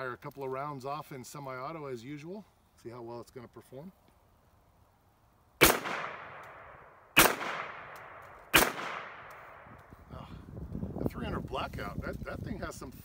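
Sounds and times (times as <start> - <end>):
gunshots with echo: 5.6 - 9.6.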